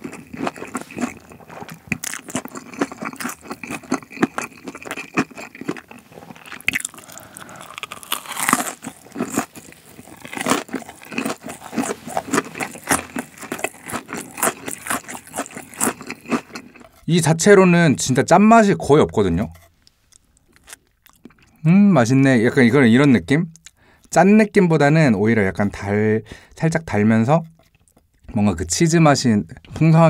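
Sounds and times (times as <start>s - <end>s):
crunchy chewing: 0.0s - 17.1s, 19.4s - 21.6s.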